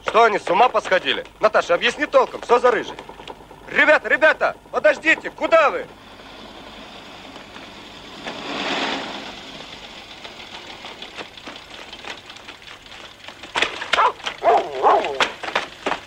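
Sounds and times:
footsteps running through mud: 11.2s - 16.0s
dog barking: 13.9s - 15.3s.

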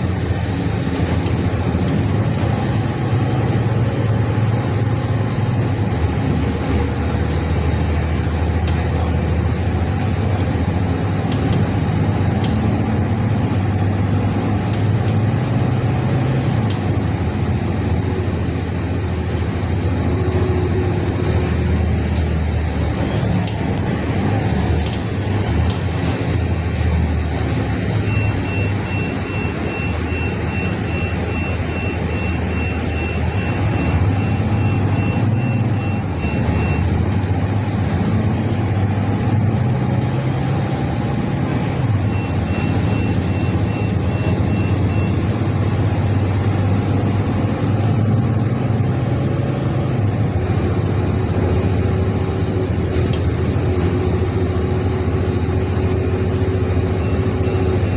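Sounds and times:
bus engine hum: 0.0s - 57.9s
road noise: 0.0s - 57.9s
high rapidly pulsing beep: 28.0s - 37.0s, 42.0s - 45.4s, 57.0s - 57.9s.

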